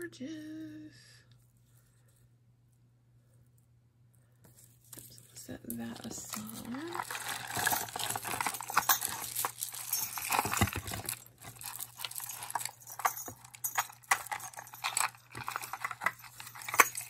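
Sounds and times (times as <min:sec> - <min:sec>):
beaded jewelry rattling and clinking: 0:04.5 - 0:17.0
hand rummaging in cardboard box: 0:04.6 - 0:17.0.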